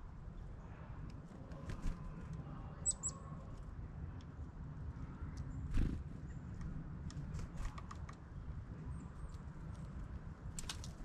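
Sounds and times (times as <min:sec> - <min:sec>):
small songbird calls: 0:02.8 - 0:03.2.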